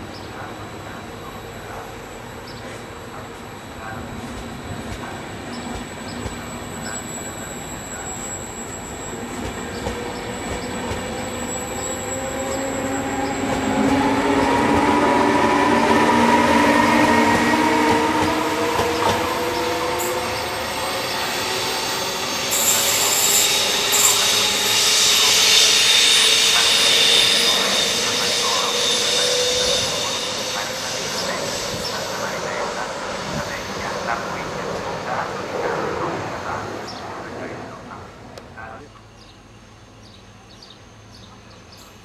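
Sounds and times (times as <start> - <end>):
electric train whine: 0.0 - 42.0
train wheels rumbling on rails: 2.7 - 37.0
high-pitched wheel squeal: 11.1 - 32.4.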